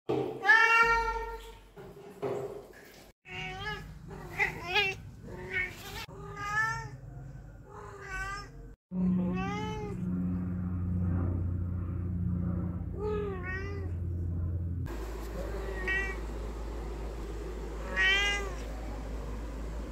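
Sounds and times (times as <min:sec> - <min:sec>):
cat meowing: 0:07.7 - 0:10.1, 0:15.7 - 0:16.2, 0:17.8 - 0:18.7
steady low hum: 0:09.0 - 0:19.9.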